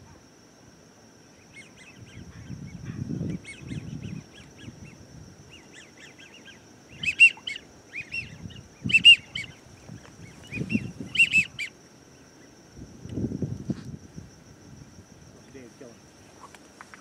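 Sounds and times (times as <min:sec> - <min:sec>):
faint high insect trill: 0:00.0 - 0:17.0
waterfowl calling: 0:05.5 - 0:09.6, 0:10.4 - 0:11.7.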